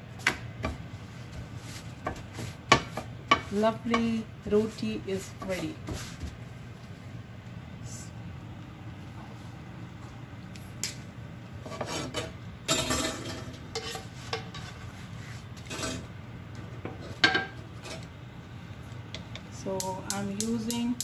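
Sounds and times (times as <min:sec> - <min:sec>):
utensils clinking and scraping on pan: 0:11.6 - 0:15.0, 0:15.6 - 0:16.1.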